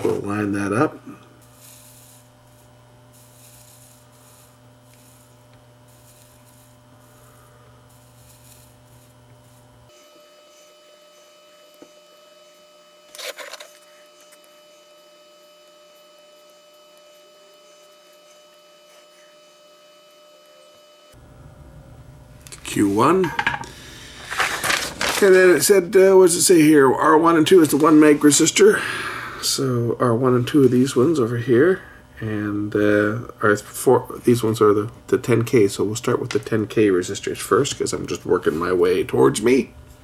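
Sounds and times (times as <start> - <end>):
faint electrical mains hum: 0.0 - 40.0
thin electronic whine: 0.0 - 40.0.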